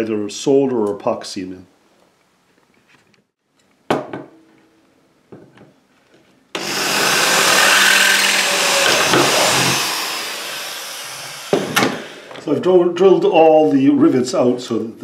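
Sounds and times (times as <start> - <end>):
knock: 3.9 - 4.3
electric drill drilling metal: 6.6 - 12.4.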